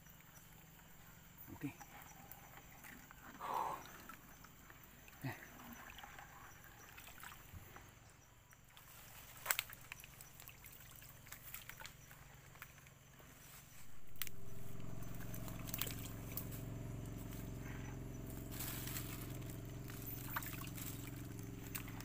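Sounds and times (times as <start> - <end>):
water sloshing in a plastic bucket: 1.8 - 8.0, 8.6 - 13.0, 13.7 - 22.0
rustling through roots and mud: 8.7 - 22.0
small snaps and clicks: 9.4 - 10.1.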